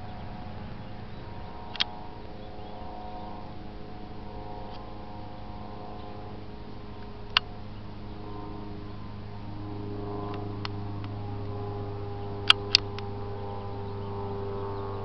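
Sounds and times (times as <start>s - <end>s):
propeller plane engine droning: 0.0s - 15.0s
sharp click: 1.7s - 1.9s.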